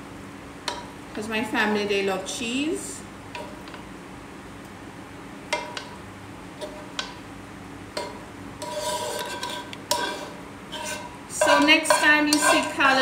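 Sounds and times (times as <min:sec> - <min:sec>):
tongs scraping a pan: 0:08.0 - 0:13.0.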